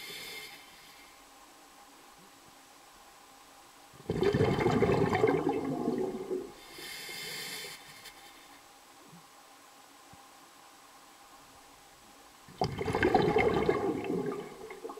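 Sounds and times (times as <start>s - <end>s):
soft hiss: 0.0s - 14.9s
water bubbling and gurgling: 4.0s - 6.6s, 12.5s - 14.9s.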